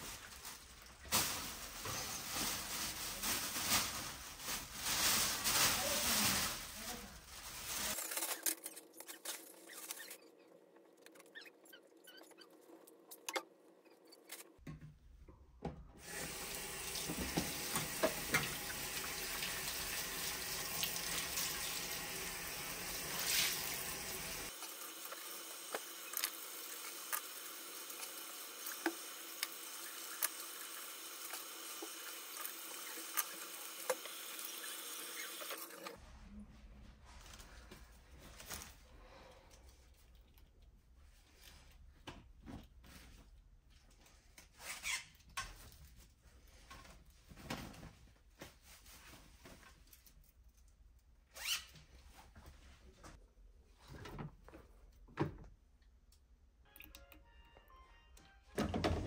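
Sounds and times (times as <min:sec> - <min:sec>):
faucet running into sink: 0:16.0 - 0:35.9.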